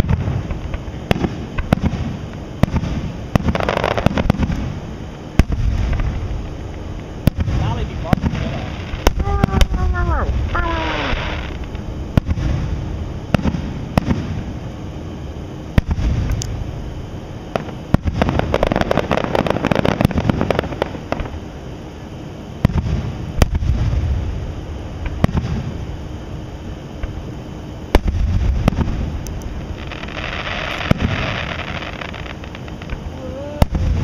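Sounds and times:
firework shells bursting: 0.0 - 14.5, 27.9 - 34.0
rapid firework crackling: 0.0 - 14.6, 15.7 - 16.6, 17.5 - 21.5, 22.6 - 25.8, 27.9 - 34.0.

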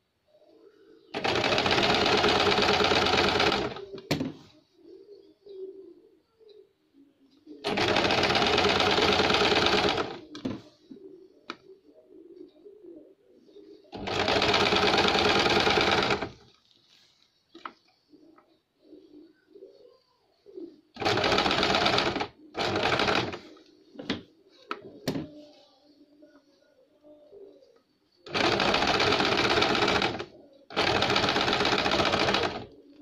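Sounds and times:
electric sewing machine stitching: 1.1 - 3.9, 7.6 - 10.5, 14.0 - 16.4, 21.0 - 23.4, 28.3 - 32.7
faint handling noise: 16.4 - 20.7, 23.4 - 28.0.

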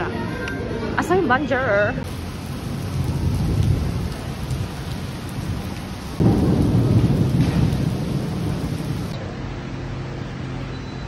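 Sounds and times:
steady rain: 1.9 - 10.8
thunder rumble: 2.0 - 9.2.

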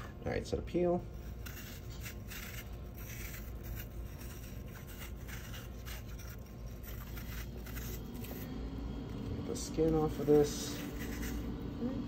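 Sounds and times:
knife scraping apple peel: 1.1 - 8.5, 9.8 - 11.6.

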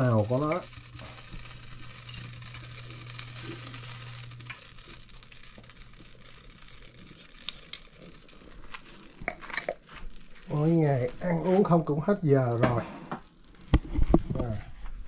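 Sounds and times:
utensils clicking and tapping: 0.0 - 3.6, 4.2 - 4.7, 7.4 - 8.0, 8.6 - 10.6
low steady hum: 0.0 - 15.0.

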